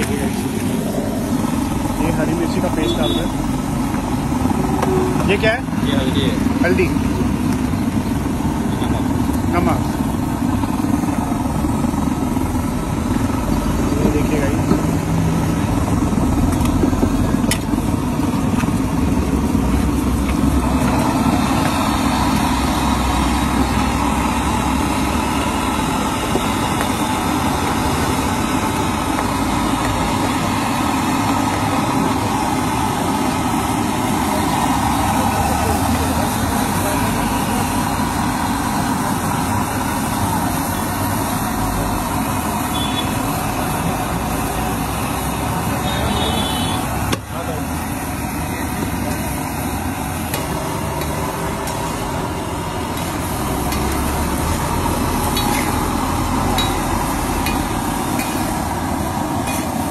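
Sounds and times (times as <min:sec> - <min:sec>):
vehicle engine running: 0:00.0 - 0:59.9
food sizzling on a griddle: 0:16.4 - 0:59.9.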